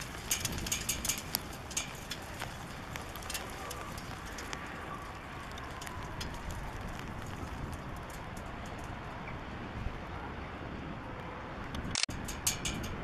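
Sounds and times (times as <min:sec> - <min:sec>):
faint clicks and knocks: 0:00.0 - 0:09.4
outdoor rumble and hiss: 0:00.0 - 0:13.0.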